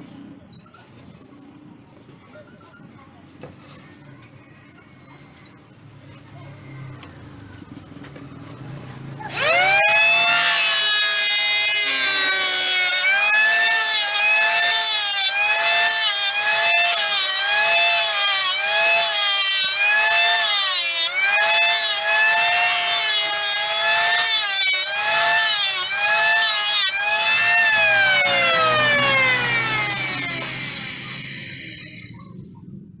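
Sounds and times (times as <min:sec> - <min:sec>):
electric hand planer whining: 0:09.3 - 0:32.3.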